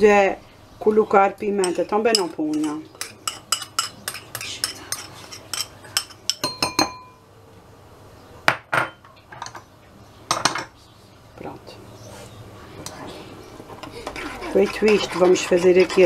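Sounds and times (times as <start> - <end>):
metal spoon scraping and tapping: 1.6 - 7.1, 13.8 - 16.0
spoon clinking on ceramic bowl: 1.6 - 7.2.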